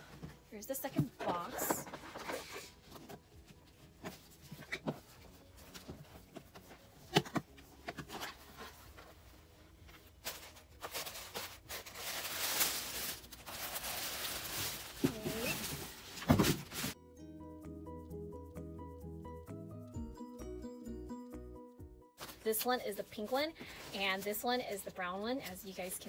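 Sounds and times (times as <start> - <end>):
tissue paper and plastic bag rustling: 8.0 - 17.0.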